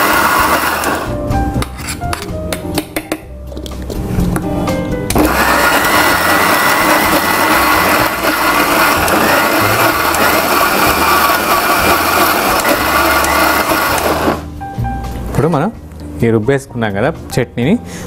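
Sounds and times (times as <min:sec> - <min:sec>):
electric mixer grinder running: 0:00.0 - 0:01.2, 0:05.1 - 0:14.5.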